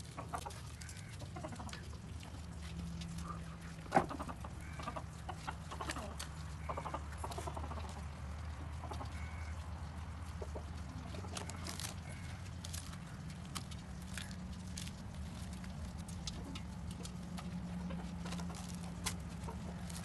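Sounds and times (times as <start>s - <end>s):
chickens clucking: 0.0s - 20.0s
bread tearing with rustles: 11.2s - 20.0s.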